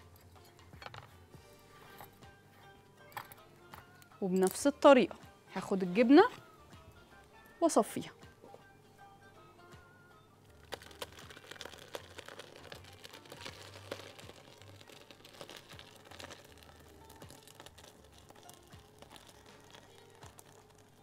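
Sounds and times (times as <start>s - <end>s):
soft background music: 0.0s - 21.0s
wet crackling and spattering: 10.6s - 21.0s.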